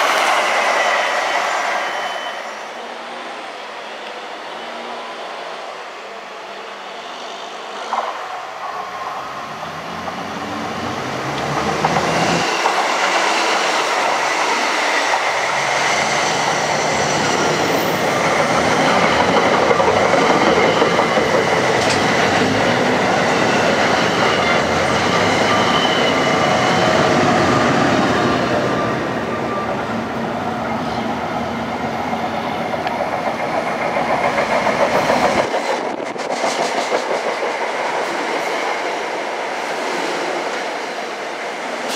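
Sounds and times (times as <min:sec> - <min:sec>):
train passing at speed: 0:00.0 - 0:41.9
wheels clickety-clack: 0:11.4 - 0:13.2, 0:18.3 - 0:22.5, 0:32.7 - 0:38.5.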